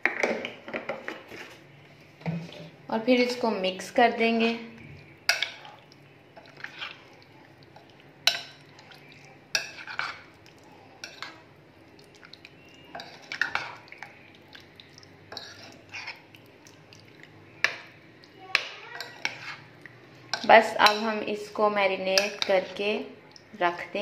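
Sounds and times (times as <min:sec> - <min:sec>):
spoon stirring marinade: 0:04.2 - 0:23.6.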